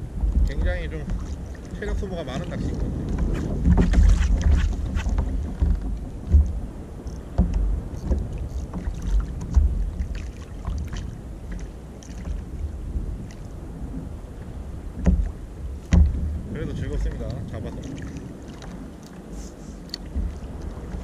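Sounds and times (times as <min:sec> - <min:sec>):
water slapping against a hull: 0:00.0 - 0:21.0
wind rumble on microphone: 0:00.0 - 0:21.0
sharp knocks: 0:00.3 - 0:06.6, 0:15.0 - 0:16.4.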